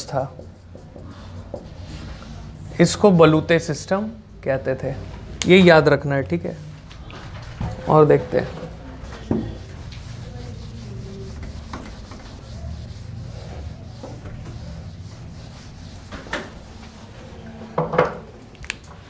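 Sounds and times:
duster rubbing on whiteboard: 0.0 - 2.4, 8.3 - 17.6.

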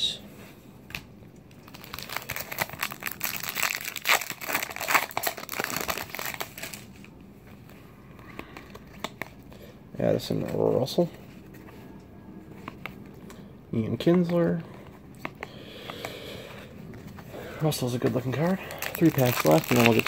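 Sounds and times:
foil wrapper crinkling: 1.5 - 7.1, 18.6 - 20.0.

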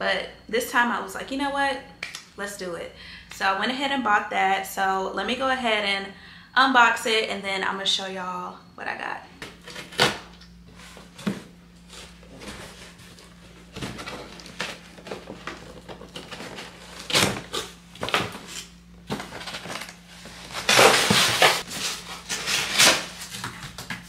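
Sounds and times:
cardboard rustling and scraping: 10.7 - 24.0
box cutter slicing tape: 20.5 - 23.5.

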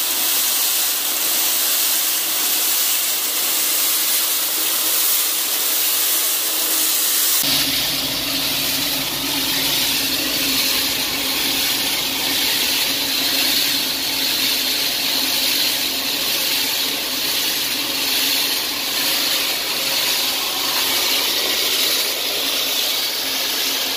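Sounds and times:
grain rushing through steel pipe: 0.0 - 23.9
low machine hum: 7.4 - 23.9.

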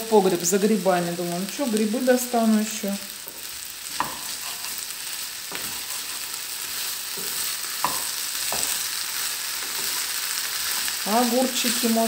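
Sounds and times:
potatoes sizzling in oil: 0.0 - 12.0
spatula knocking against pan: 7.2 - 8.8.

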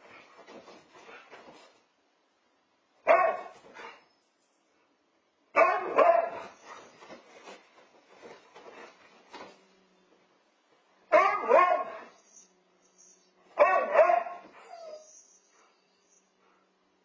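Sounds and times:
dogs barking and yipping: 5.6 - 7.0, 11.1 - 15.5.

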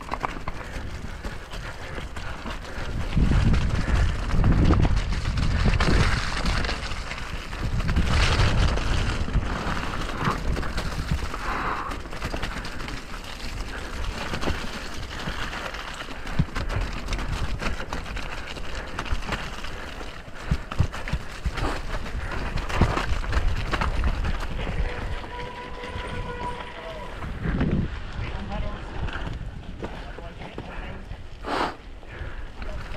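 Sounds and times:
wind rushing over microphone: 0.0 - 12.0, 20.4 - 30.2
bike knocking on rocks: 0.0 - 26.8
bike clattering: 0.0 - 27.5
tyres rolling over mud and rock: 0.0 - 31.4, 32.0 - 32.9.

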